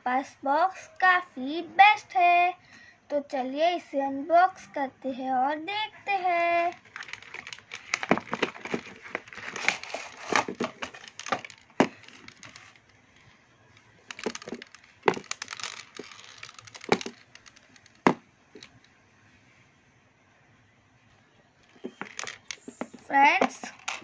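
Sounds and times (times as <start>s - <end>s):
plastic packaging cracking and clicking: 6.7s - 12.9s, 14.1s - 18.8s, 21.7s - 23.0s.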